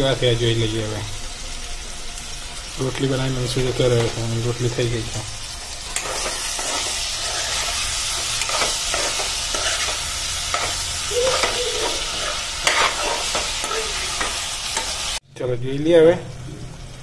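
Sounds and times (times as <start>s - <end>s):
vegetables sizzling in oil: 0.0s - 15.3s, 16.0s - 17.0s
spatula scraping pan: 5.8s - 15.2s.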